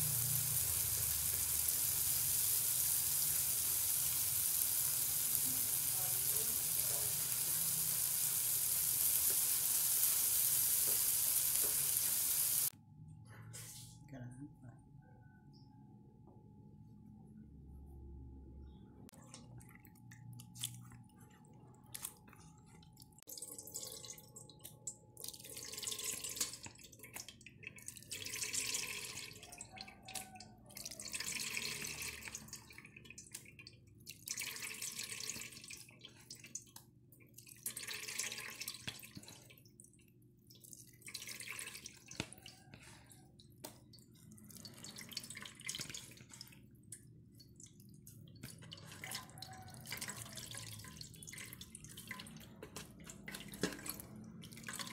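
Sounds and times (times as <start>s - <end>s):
liquid splashing and dripping: 19.2s - 54.9s.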